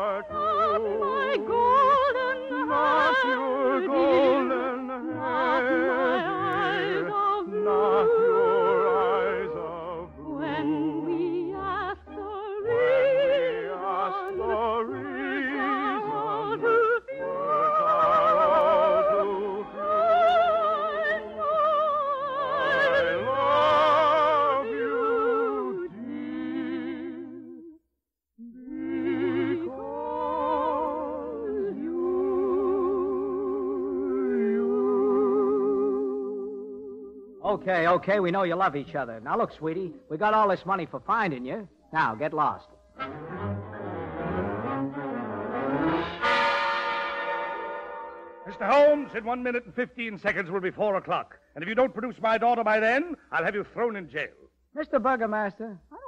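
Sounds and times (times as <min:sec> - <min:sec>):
trained voices singing with vibrato: 0:00.0 - 0:27.7, 0:28.4 - 0:37.3
orchestra: 0:42.0 - 0:50.6.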